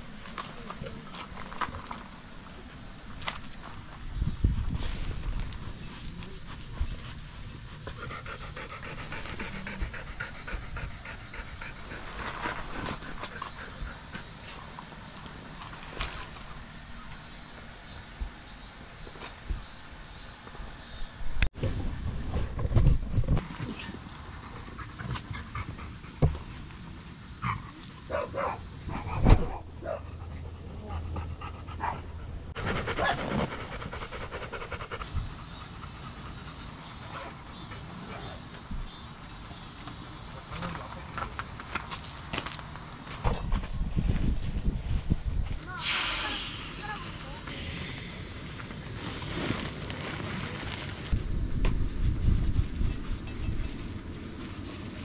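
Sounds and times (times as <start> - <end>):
dog panting rapidly: 7.1 - 14.1, 30.2 - 38.4.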